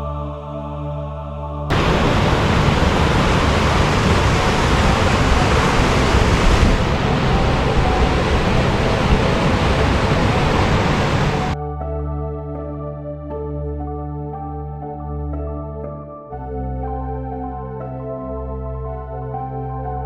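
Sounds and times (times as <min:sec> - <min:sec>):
river rapids roaring: 0:01.7 - 0:11.6.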